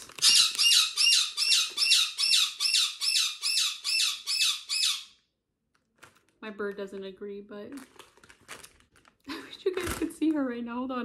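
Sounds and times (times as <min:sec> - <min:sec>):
parakeet squawking: 0:00.1 - 0:05.2.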